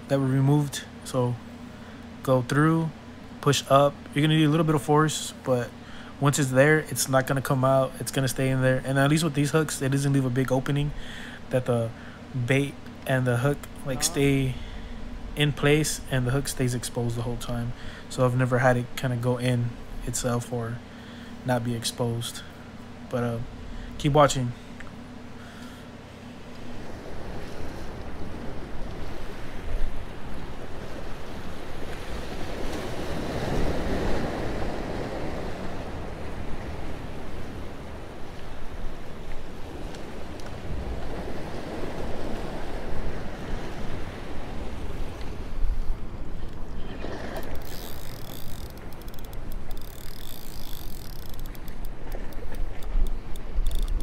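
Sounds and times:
surf washing against rocks: 0:26.7 - 0:46.2
fishing reel ticking: 0:47.4 - 0:54.0.

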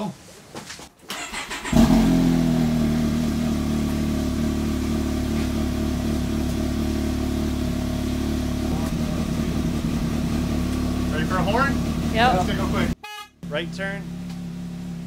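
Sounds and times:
engine starting and idling: 0:01.0 - 0:03.2.

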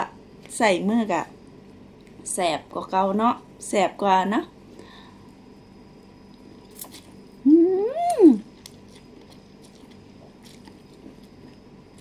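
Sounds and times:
chewing and slurping: 0:08.5 - 0:12.0.

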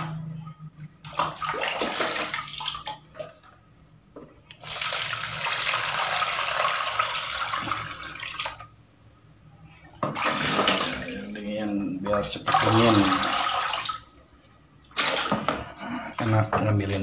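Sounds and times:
water splashing: 0:01.0 - 0:03.4, 0:10.0 - 0:14.2, 0:14.8 - 0:17.0
water pouring into plastic basin: 0:01.0 - 0:03.5, 0:04.5 - 0:08.8, 0:10.0 - 0:14.1, 0:14.8 - 0:16.4.

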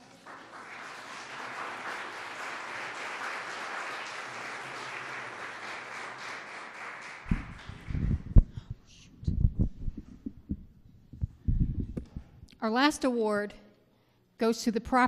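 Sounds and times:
audience applauding: 0:00.0 - 0:08.4
microphone handling thumps: 0:07.3 - 0:12.4.

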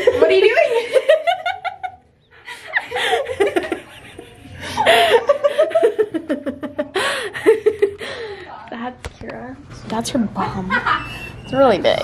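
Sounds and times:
girls laughing loudly: 0:00.0 - 0:08.0, 0:10.7 - 0:11.3.

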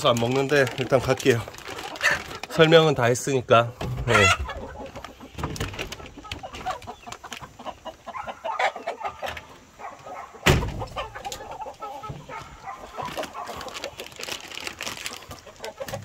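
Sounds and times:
chickens clucking: 0:00.0 - 0:16.0
loud thump: 0:10.4 - 0:10.9.

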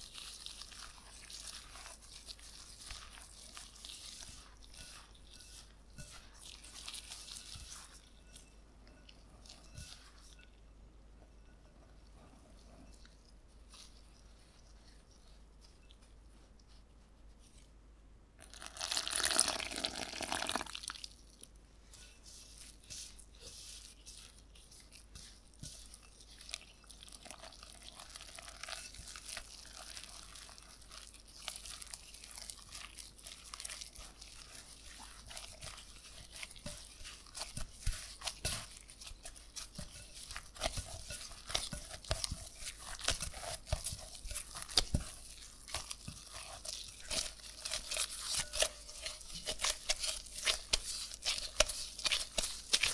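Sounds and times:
plastic gloves crinkling: 0:00.0 - 0:10.5, 0:18.4 - 0:52.9
dough squishing and crumbling: 0:00.0 - 0:52.9
water pouring into a glass bowl: 0:18.4 - 0:21.1.

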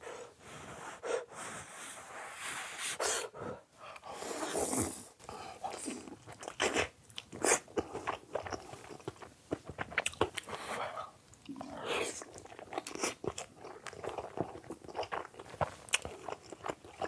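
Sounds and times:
person chewing dumpling: 0:04.0 - 0:17.0.

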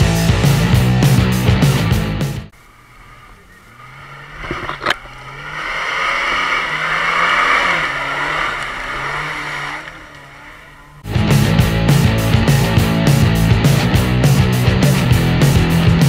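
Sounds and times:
car engine revving: 0:00.0 - 0:16.0
tyres churning mud: 0:02.5 - 0:11.1.

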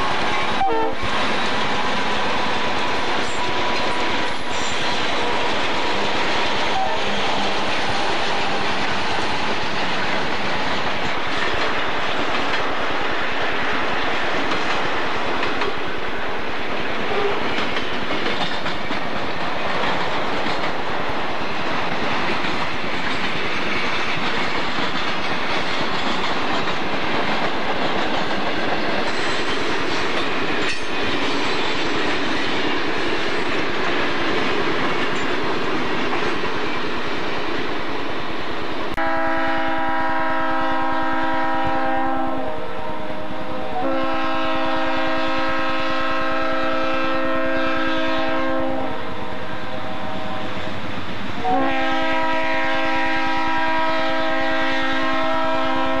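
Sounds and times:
freight cars rolling on rails: 0:00.0 - 0:39.0
locomotive air horn blasts: 0:00.5 - 0:01.1, 0:39.0 - 0:50.4, 0:51.4 - 0:56.0.

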